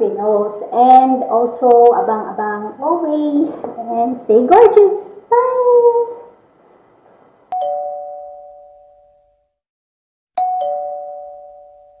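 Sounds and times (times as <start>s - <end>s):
two-tone ding-dong chime: 7.6s - 9.4s, 10.4s - 12.0s.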